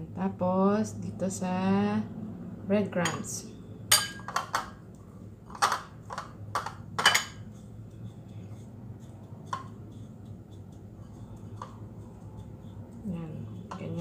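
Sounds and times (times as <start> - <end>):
low steady hum: 0.0 - 14.0
bowls and fork clinking: 3.0 - 4.8, 5.5 - 7.6.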